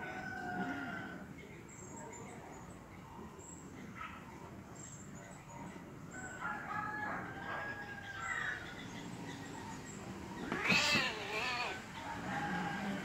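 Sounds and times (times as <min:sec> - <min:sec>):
cats yowling in a fight: 0:10.4 - 0:13.0.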